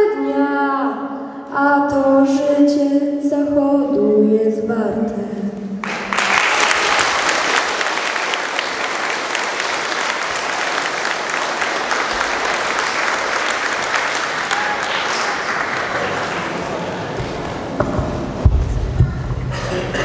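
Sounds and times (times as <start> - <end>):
audience applauding: 5.8 - 17.2.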